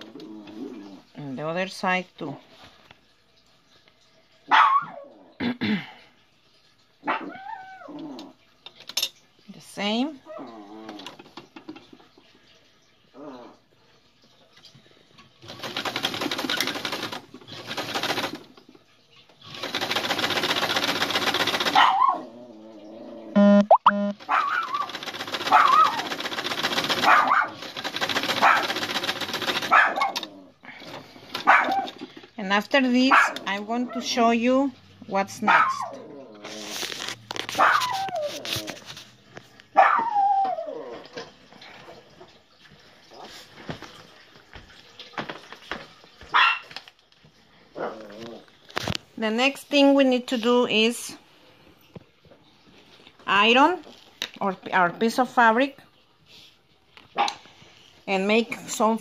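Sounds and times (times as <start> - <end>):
sewing machine stitching: 15.4 - 18.6, 19.4 - 22.0, 24.2 - 30.3
dog whining: 37.5 - 38.9, 39.8 - 41.3.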